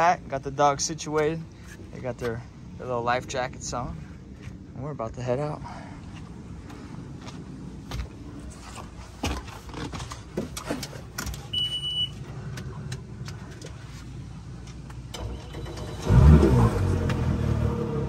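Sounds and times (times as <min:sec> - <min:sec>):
handling clicks and knocks: 0:09.2 - 0:11.6
short high beep: 0:11.5 - 0:12.1.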